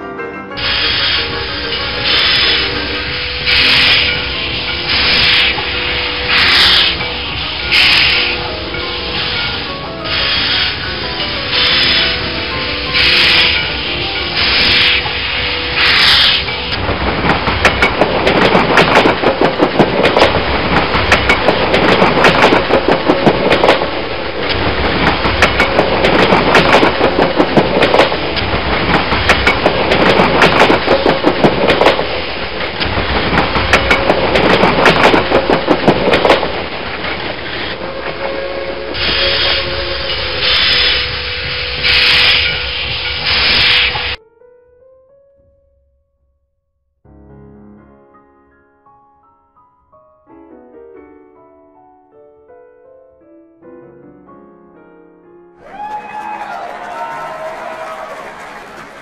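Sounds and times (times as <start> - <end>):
steam locomotive chugging: 0.6 - 44.2
wheel clatter: 0.7 - 44.2.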